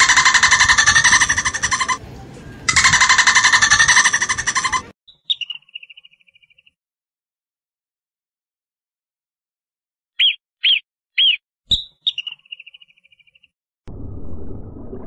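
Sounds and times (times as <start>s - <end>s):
dolphin pulsed squawks: 0.0s - 2.0s, 2.7s - 5.4s.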